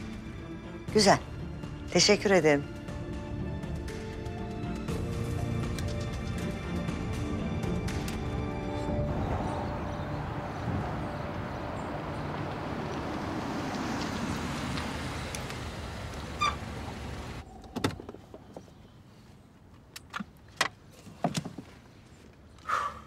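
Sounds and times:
car engine and tyre noise: 0:05.8 - 0:23.0.

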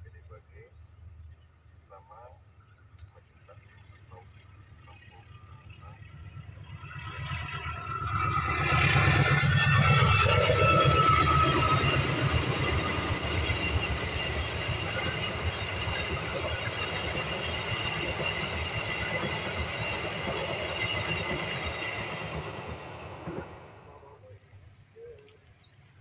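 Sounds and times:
train wheels rumbling on rail: 0:02.8 - 0:24.3.

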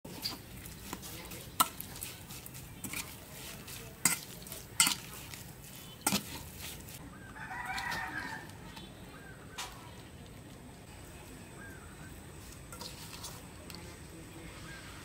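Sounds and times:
metal ladle stirring wet mix: 0:00.1 - 0:09.0, 0:11.7 - 0:14.2
metal clinking on metal bowl: 0:04.0 - 0:05.2.

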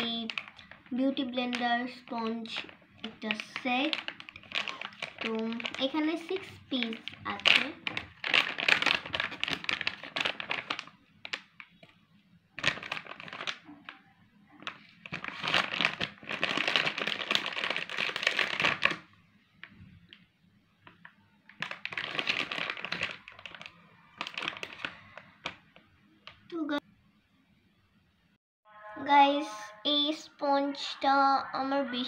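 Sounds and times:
plastic packaging crinkling: 0:00.0 - 0:20.2, 0:20.8 - 0:26.6.

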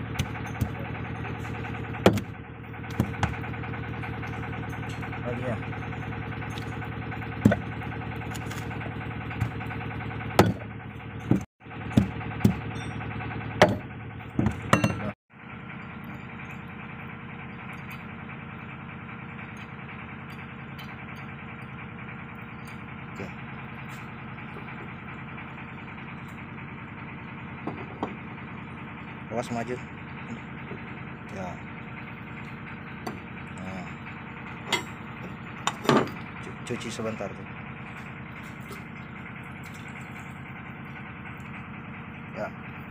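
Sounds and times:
engine drone: 0:00.0 - 0:42.9
hammer knocking on metal: 0:13.6 - 0:15.1.

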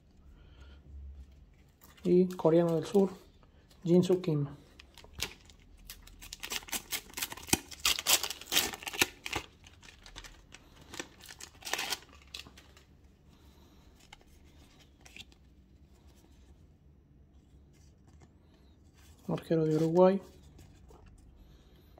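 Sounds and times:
paper ripping and rustling: 0:05.0 - 0:12.8.

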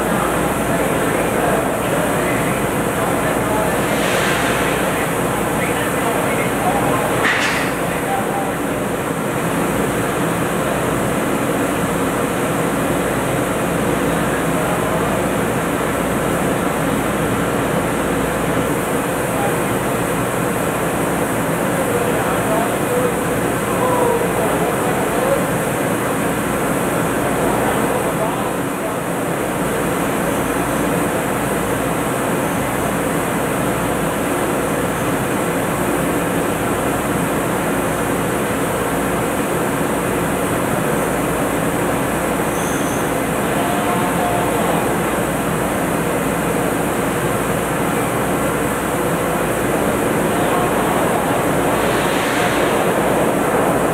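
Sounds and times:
drilling rig machinery drone: 0:42.2 - 0:53.9
low hum: 0:49.6 - 0:53.9.

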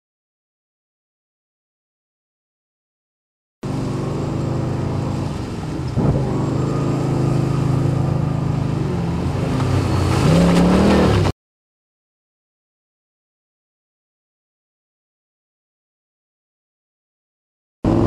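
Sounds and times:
car engine revving: 0:03.6 - 0:11.3.

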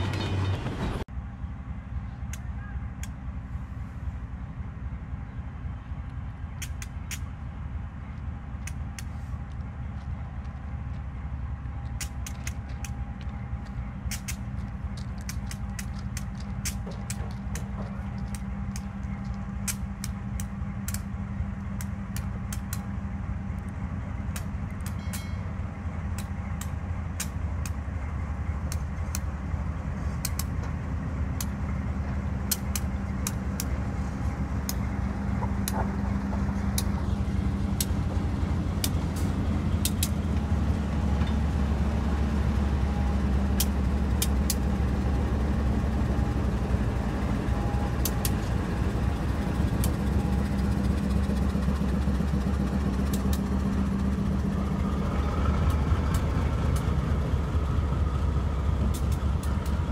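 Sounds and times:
locomotive diesel engine drone: 0:00.0 - 0:59.9
sharp clicks: 0:06.6 - 0:07.4, 0:11.8 - 0:22.9, 0:30.2 - 0:30.7, 0:32.5 - 0:33.8, 0:38.8 - 0:40.5, 0:43.6 - 0:44.7.

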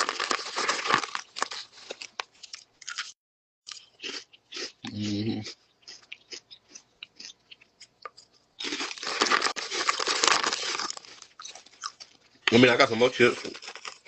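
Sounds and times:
plastic chip bag crinkling: 0:00.0 - 0:03.1, 0:08.6 - 0:14.0
chips being chewed: 0:00.0 - 0:14.0.

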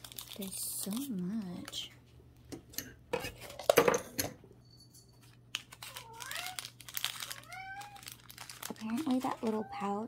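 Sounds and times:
packaging crinkling: 0:00.0 - 0:01.9, 0:05.2 - 0:10.0
cat meowing: 0:05.9 - 0:08.2.

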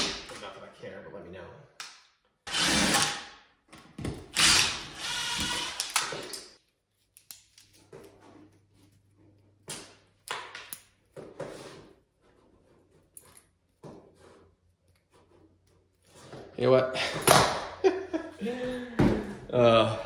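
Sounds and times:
cordless drill running: 0:02.5 - 0:03.2, 0:04.3 - 0:06.2.

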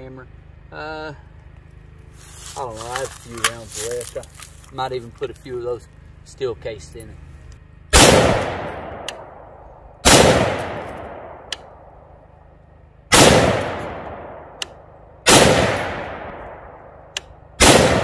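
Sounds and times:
rifle shots with echo: 0:07.9 - 0:12.0, 0:13.1 - 0:18.0.

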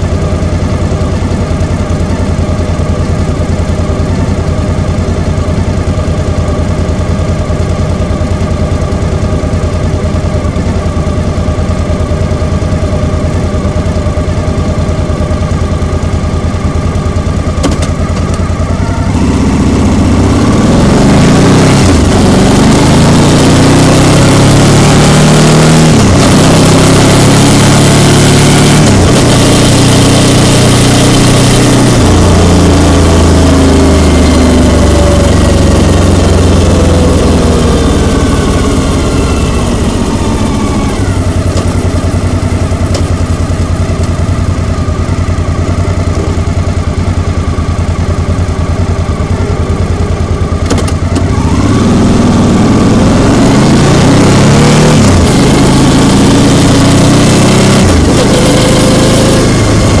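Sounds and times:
scooter engines idling: 0:00.0 - 0:20.4, 0:34.9 - 0:51.7
scooter engine revving: 0:17.4 - 1:00.0.

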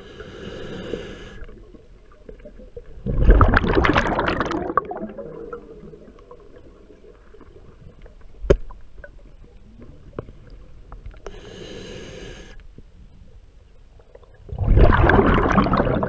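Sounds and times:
hissing inhale through regulator: 0:00.0 - 0:01.6, 0:11.2 - 0:12.8.

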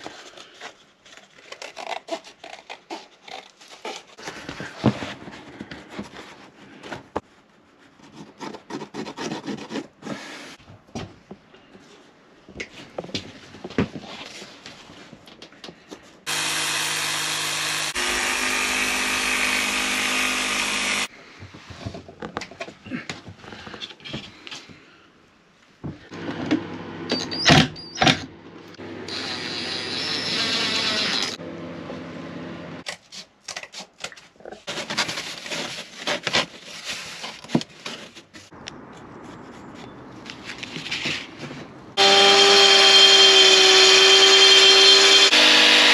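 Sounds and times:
power tool running: 0:16.3 - 0:21.1, 0:28.8 - 0:32.8, 0:42.0 - 0:45.9.

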